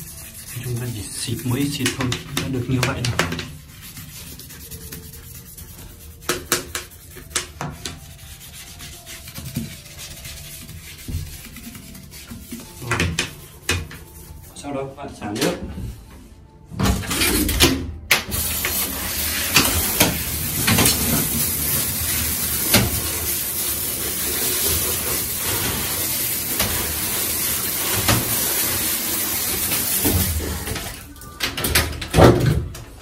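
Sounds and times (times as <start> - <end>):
shower spray hissing on tiles: 8.0 - 14.0, 18.3 - 31.0.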